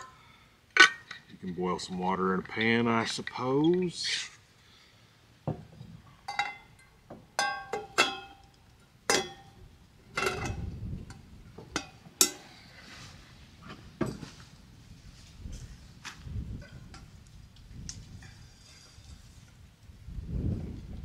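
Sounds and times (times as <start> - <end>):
metal pots and lids clinking: 6.3 - 8.5, 9.1 - 10.7, 11.7 - 12.6.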